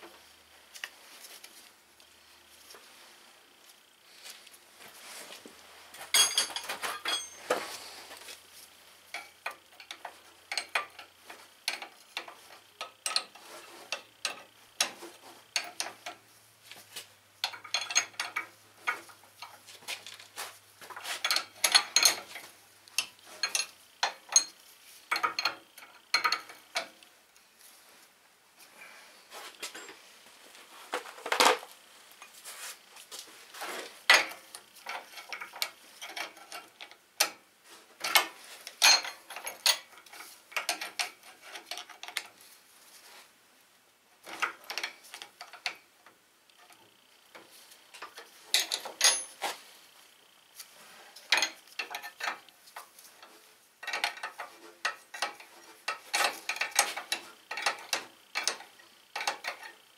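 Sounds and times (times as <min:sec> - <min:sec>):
wrench clinking on metal: 0:06.1 - 0:07.5, 0:09.1 - 0:16.2, 0:17.4 - 0:18.5, 0:21.2 - 0:27.0, 0:38.0 - 0:42.3, 0:48.1 - 0:49.4, 0:53.8 - 0:59.9.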